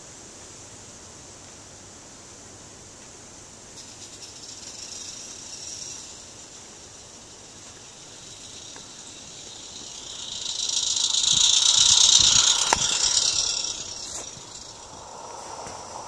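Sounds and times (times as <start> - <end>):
steam locomotive passing: 3.5 - 16.0.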